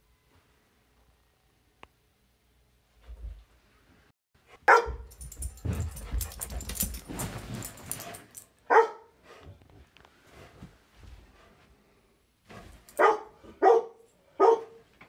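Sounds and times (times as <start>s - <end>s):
dog barking: 4.7s - 5.2s, 8.7s - 9.2s, 13.0s - 14.8s
thumping and clattering: 4.9s - 8.4s.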